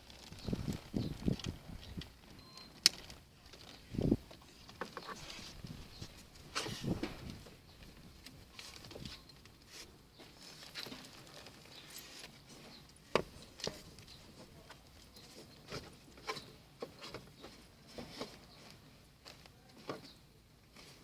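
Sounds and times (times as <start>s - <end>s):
soft rubbing of webbing: 3.1s - 7.6s.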